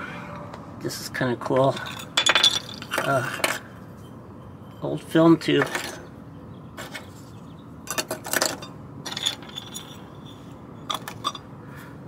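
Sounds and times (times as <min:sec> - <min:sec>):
metal objects clinking on board: 0:01.8 - 0:03.6, 0:07.9 - 0:11.4.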